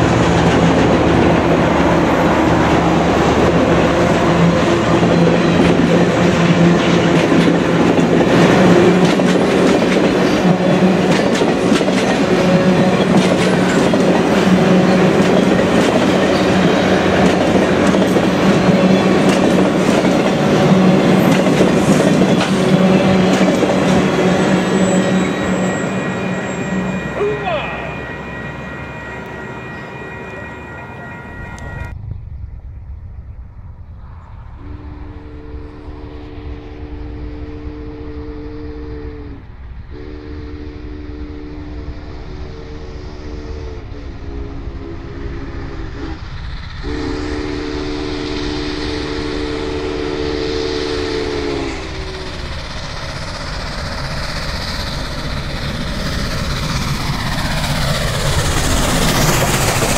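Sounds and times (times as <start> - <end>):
steam locomotive rumble: 0.0 - 59.9
steam whistle blasts: 22.2 - 31.9, 34.6 - 52.4.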